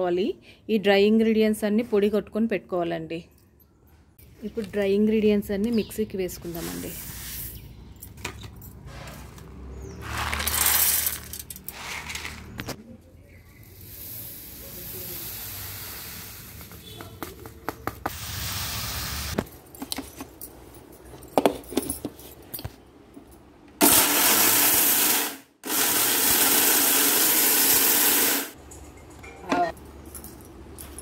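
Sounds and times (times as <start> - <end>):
seeds poured into steel jar: 10.0 - 12.6
mixer grinder grinding spices: 23.8 - 28.5.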